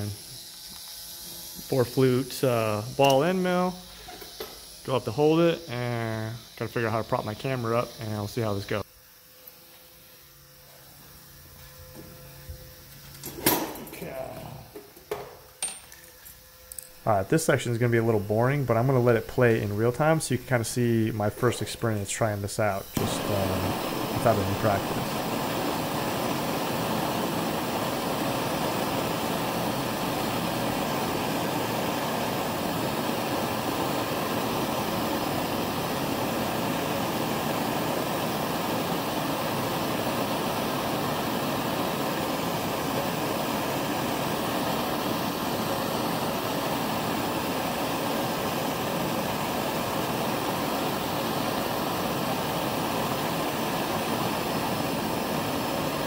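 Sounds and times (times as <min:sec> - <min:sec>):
gas torch flame rushing: 0:17.0 - 0:56.0.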